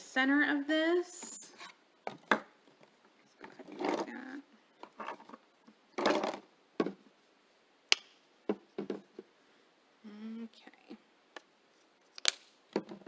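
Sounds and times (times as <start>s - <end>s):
plastic bottles rustling and knocking: 2.0s - 7.1s, 8.4s - 9.3s, 12.7s - 13.0s.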